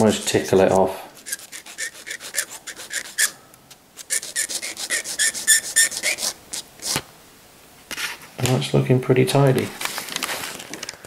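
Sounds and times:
file rasping on plastic: 1.2s - 3.4s, 4.0s - 7.0s.

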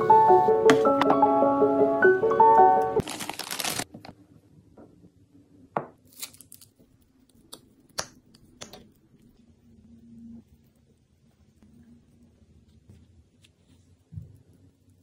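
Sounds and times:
plastic bag crinkling: 3.0s - 4.1s.

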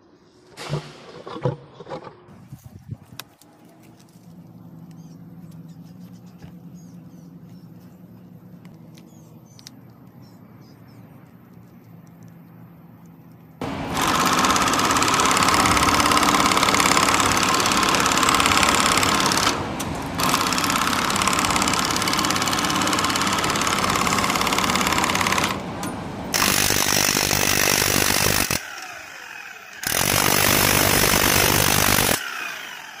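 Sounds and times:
demolition hammer chiselling metal: 13.6s - 28.6s
loud power tool: 13.6s - 33.0s.

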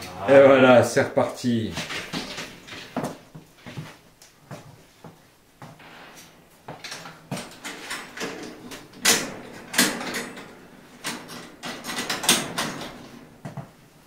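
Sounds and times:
mesh door knocking and rattling: 6.8s - 13.8s.

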